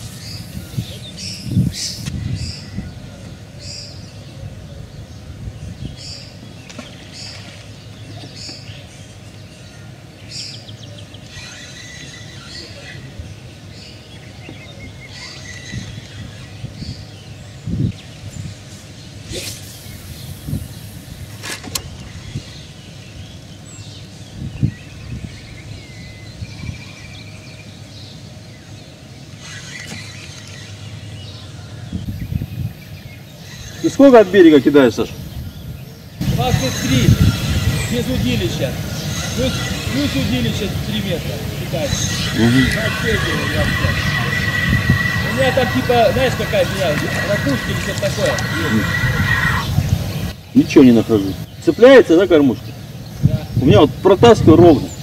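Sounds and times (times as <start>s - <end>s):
rustling hiss: 0.0s - 2.6s, 17.6s - 24.2s, 32.0s - 55.0s
small birds chirping: 0.0s - 55.0s
small bird chirping: 28.8s - 55.0s
low outdoor rumble: 35.0s - 51.6s.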